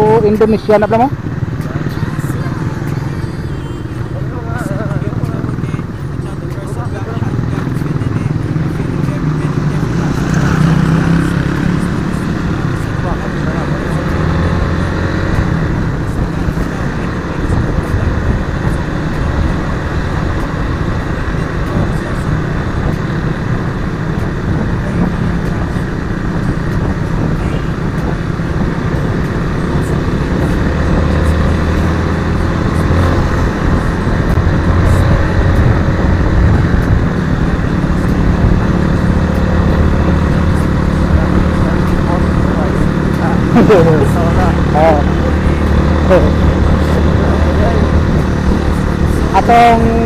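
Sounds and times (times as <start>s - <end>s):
motorcycle engine running: 0.0s - 50.0s
wind rush on microphone: 15.1s - 50.0s.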